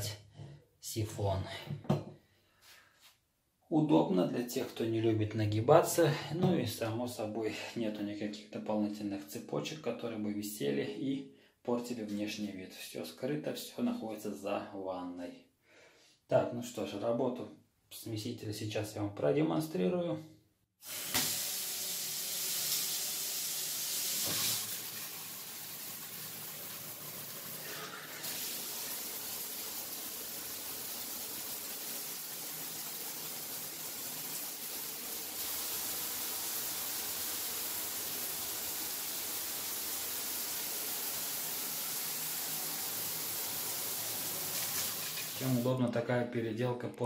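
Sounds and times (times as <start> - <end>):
water pouring into bathtub: 20.8 - 45.8
rain shower head spraying: 38.0 - 45.8.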